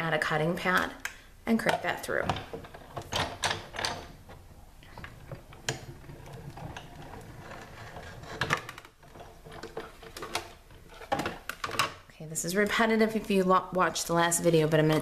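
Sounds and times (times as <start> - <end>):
hand-cranked machine grinding: 2.7 - 11.2.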